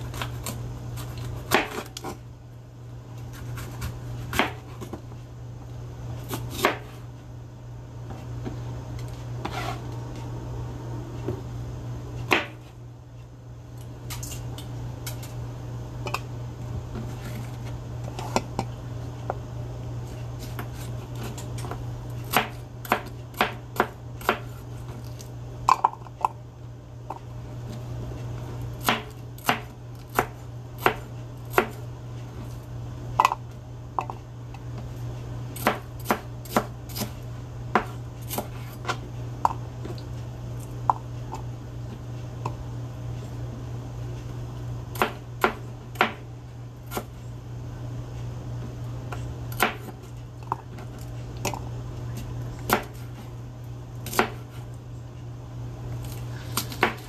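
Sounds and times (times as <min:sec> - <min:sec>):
steady low hum: 0:00.0 - 0:57.0
knife chopping on plastic board: 0:00.1 - 0:02.2, 0:03.3 - 0:05.0, 0:06.3 - 0:07.0, 0:12.3 - 0:12.7, 0:20.5 - 0:24.6, 0:28.8 - 0:31.8, 0:35.6 - 0:39.6, 0:44.9 - 0:46.2, 0:49.5 - 0:50.0, 0:52.7 - 0:53.1, 0:54.0 - 0:54.6, 0:56.1 - 0:57.0.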